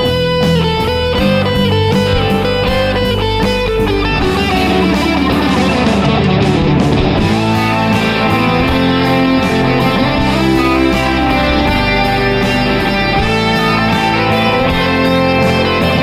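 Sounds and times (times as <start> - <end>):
guitar background music: 0.0 - 16.0.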